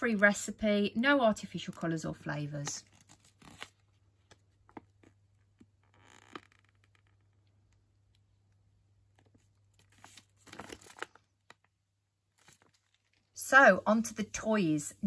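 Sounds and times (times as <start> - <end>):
plastic pouch crinkling: 2.8 - 5.2, 9.2 - 11.7, 12.3 - 13.4.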